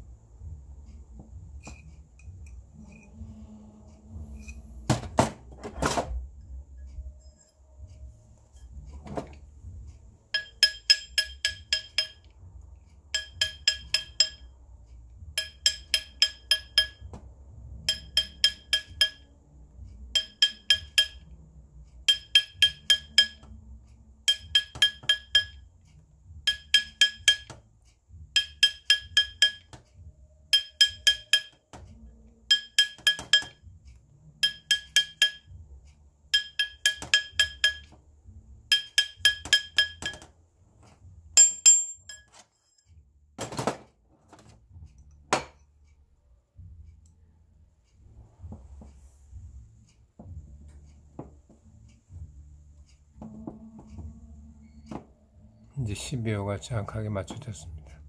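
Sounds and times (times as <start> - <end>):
hammer tapping ring on steel: 10.3 - 12.5, 13.1 - 14.6, 15.2 - 19.4, 20.0 - 21.4, 22.0 - 23.6, 24.2 - 35.7, 36.3 - 40.3, 41.4 - 43.0, 53.1 - 55.0.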